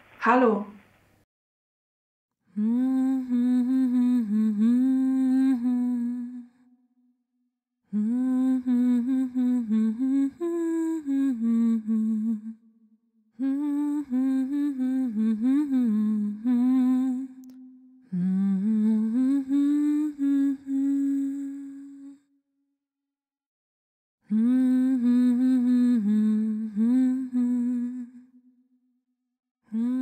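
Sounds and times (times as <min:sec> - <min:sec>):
woman humming: 0:02.6 - 0:06.4, 0:07.9 - 0:12.5, 0:13.4 - 0:22.2, 0:24.3 - 0:28.2, 0:29.7 - 0:30.0.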